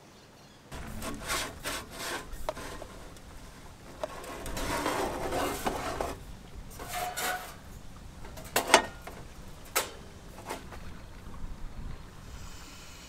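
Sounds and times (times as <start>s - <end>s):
object scraping: 0.7s - 7.7s.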